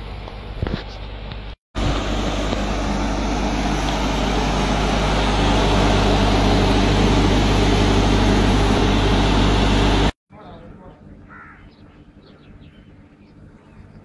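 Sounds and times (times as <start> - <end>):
generator engine humming: 1.8 - 11.2.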